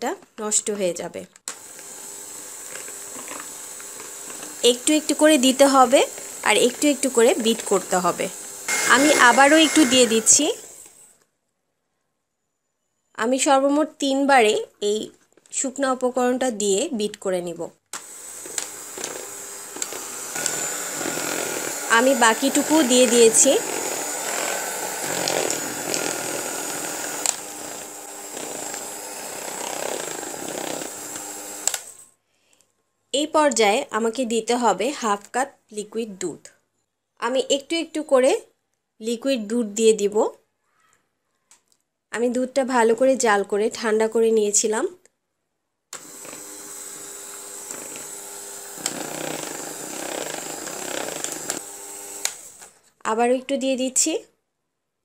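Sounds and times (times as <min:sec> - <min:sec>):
electric hand mixer whisking batter: 0:01.6 - 0:11.0, 0:18.0 - 0:32.0, 0:46.0 - 0:52.7.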